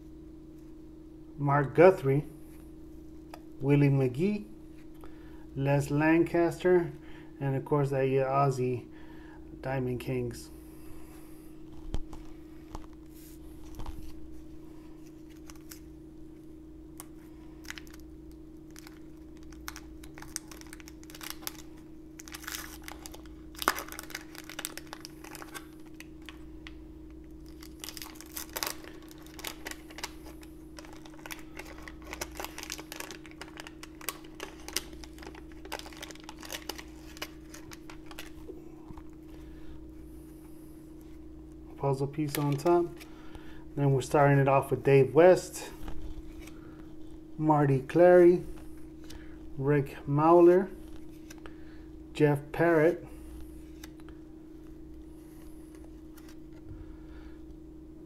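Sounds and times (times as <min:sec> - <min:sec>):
wax paper wrapper tearing and crinkling: 0:15.0 - 0:15.9, 0:17.0 - 0:38.5.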